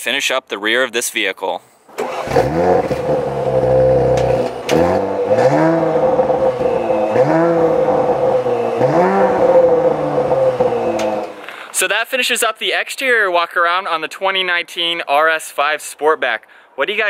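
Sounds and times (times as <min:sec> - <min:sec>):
car engine idling and revving: 0:02.0 - 0:11.5.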